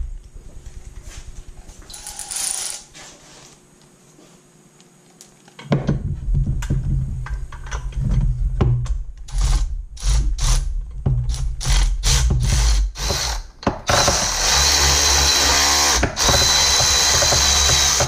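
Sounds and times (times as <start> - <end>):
tool knocks and rattles: 5.6 - 9.0, 15.8 - 18.0.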